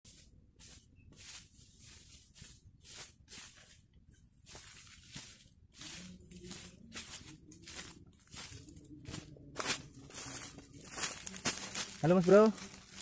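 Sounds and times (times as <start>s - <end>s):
footsteps on dry leaves: 0.1s - 13.0s.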